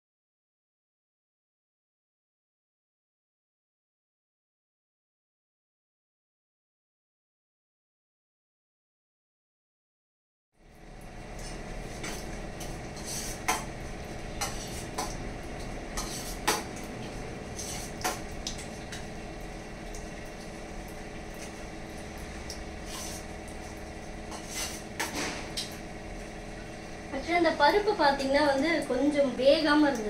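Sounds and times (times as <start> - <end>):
steady hum: 10.6 - 30.0
metal pots and utensils clinking: 14.4 - 15.2, 15.9 - 18.2.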